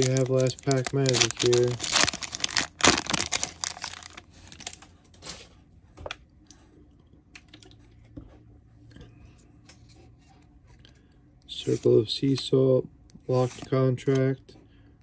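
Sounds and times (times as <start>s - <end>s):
foil wrapper crinkling and tearing: 0.0s - 4.8s.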